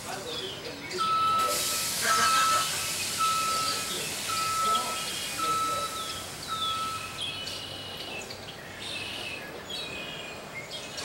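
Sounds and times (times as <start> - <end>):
bus stop ambience: 0.0 - 11.0
birds chirping: 0.1 - 1.4, 2.2 - 11.0
high steady tone: 1.0 - 7.2.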